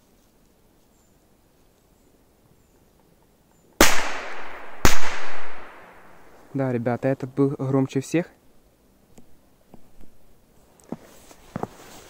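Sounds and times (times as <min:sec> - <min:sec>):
firecracker bangs with echo: 0:03.8 - 0:06.2.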